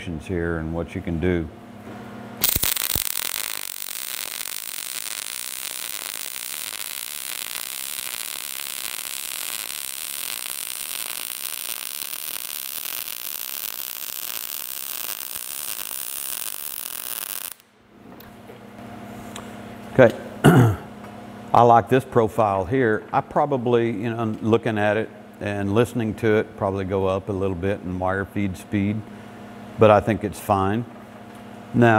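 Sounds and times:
welding arc crackling: 2.4 - 17.7.

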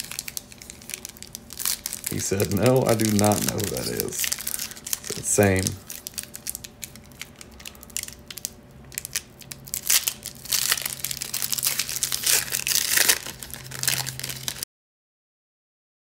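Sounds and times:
foil pack crinkling and tearing: 0.0 - 14.6.

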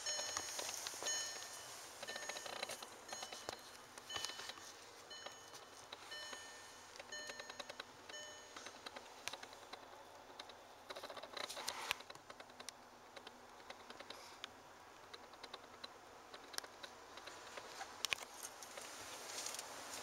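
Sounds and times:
low steady hiss: 0.0 - 20.0
camera handling clicks and rustles: 2.0 - 4.7.

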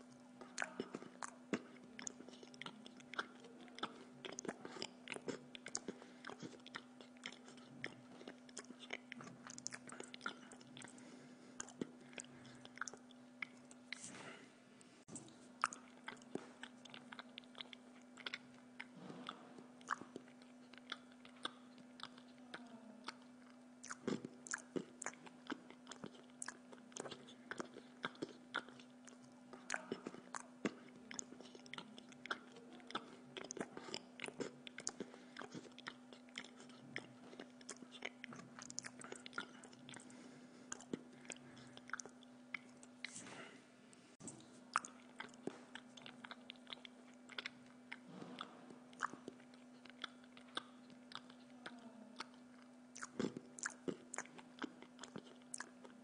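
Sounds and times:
man chewing food: 0.0 - 56.0
steady hum: 0.0 - 56.0
mouth clicks and smacks: 15.1 - 43.3, 44.2 - 56.0.

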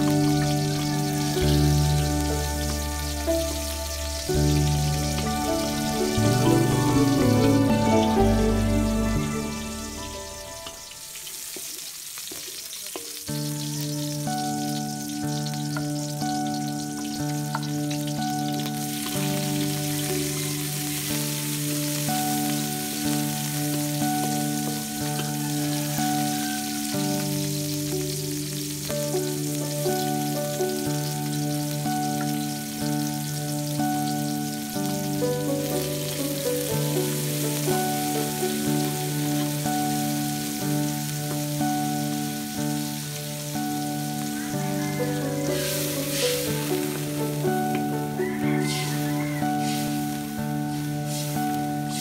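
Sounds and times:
background music of held notes: 0.0 - 52.0
oil sizzling in a wok: 0.0 - 52.0
wooden spatula stirring vegetables: 11.2 - 14.3.

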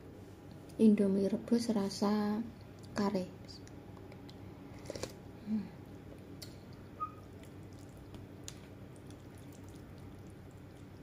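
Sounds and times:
stirring noodles in broth: 7.3 - 11.0
faint clicks and drips: 7.4 - 11.0.

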